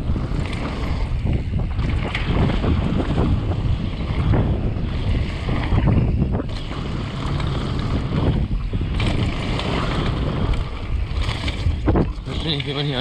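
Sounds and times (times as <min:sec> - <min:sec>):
bike clattering: 0:00.0 - 0:13.0
bike tyres rolling over gravel: 0:00.0 - 0:13.0
wind buffeting microphone: 0:00.0 - 0:13.0.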